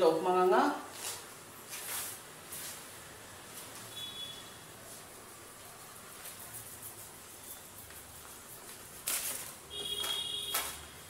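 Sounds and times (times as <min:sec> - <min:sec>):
glue stick rubbing on paper: 0:05.7 - 0:09.6.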